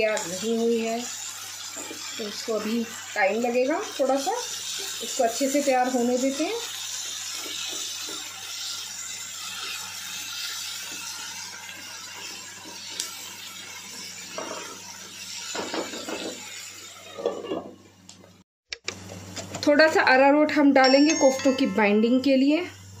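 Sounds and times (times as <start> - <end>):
vegetables sizzling in a pan: 0.0 - 18.0, 20.2 - 23.0
spatula stirring and scraping: 13.8 - 17.7.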